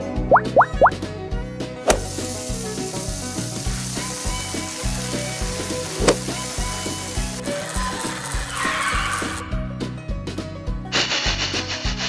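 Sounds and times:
steaks sizzling on a grill: 0:01.9 - 0:09.4.

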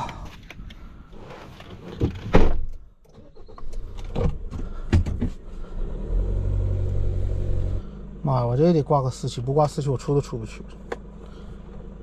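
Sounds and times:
pickup engine running: 0:03.3 - 0:12.0.

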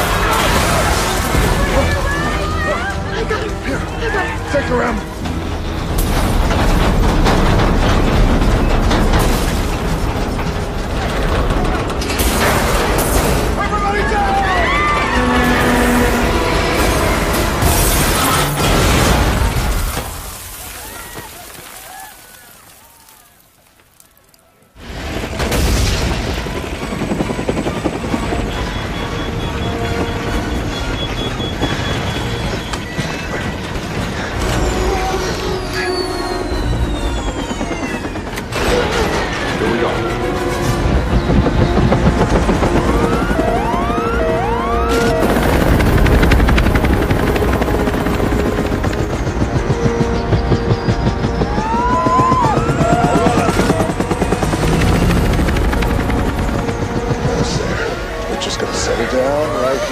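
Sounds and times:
helicopter rotor and engine: 0:00.0 - 0:19.8, 0:24.8 - 0:59.9
buildings collapsing and debris falling: 0:00.0 - 0:59.9
deep earthquake rumble: 0:05.0 - 0:13.7.

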